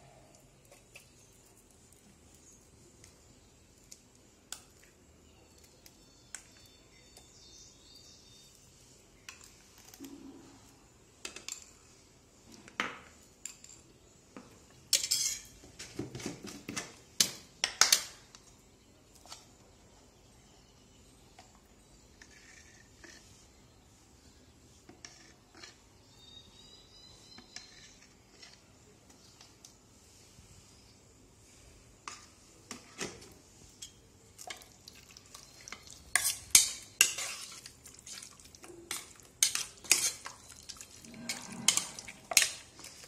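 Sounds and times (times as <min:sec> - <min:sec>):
metal utensils clinking and clattering: 0:35.5 - 0:43.0.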